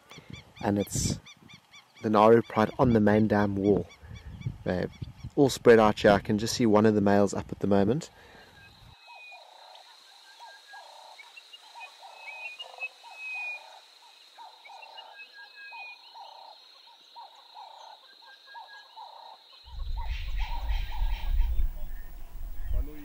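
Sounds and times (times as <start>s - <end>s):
high-pitched insect whine: 19.7s - 23.0s
low animal call: 19.7s - 23.0s
low rumble: 19.7s - 23.0s.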